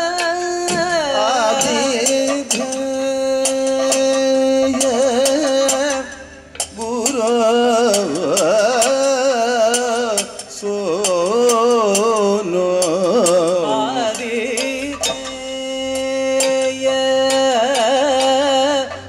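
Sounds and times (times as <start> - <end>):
men singing ornamented melody: 0.0 - 19.0
sharp percussion strokes: 0.0 - 19.0.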